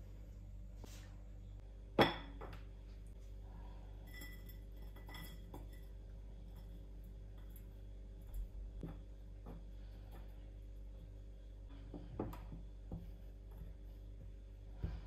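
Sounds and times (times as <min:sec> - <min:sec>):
utensils and dishes clinking: 0:04.0 - 0:06.8.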